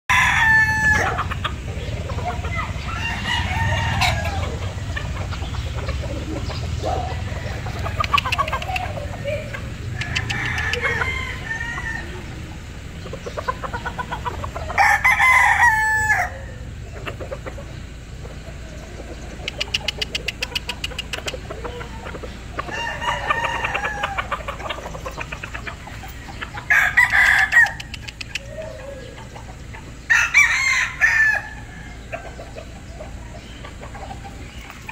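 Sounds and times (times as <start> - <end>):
roosters crowing: 0.1 - 34.9
rapid clucking: 1.0 - 14.8, 16.8 - 30.1.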